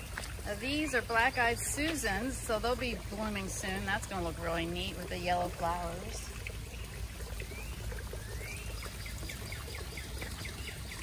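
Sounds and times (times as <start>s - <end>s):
water pouring into pond: 0.0s - 11.0s
bird singing: 6.7s - 11.0s.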